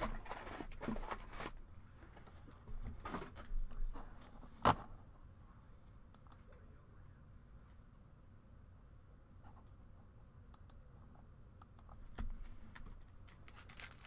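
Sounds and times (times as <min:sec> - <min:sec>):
wrapper crinkling: 0:13.2 - 0:14.0.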